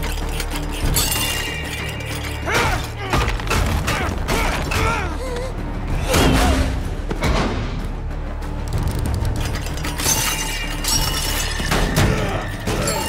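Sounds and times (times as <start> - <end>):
dramatic music: 0.0 - 13.0.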